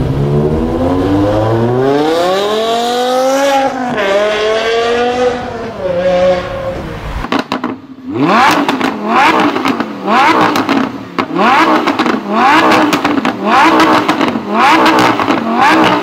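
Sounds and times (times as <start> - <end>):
sports car engine revving: 0.0 - 16.0.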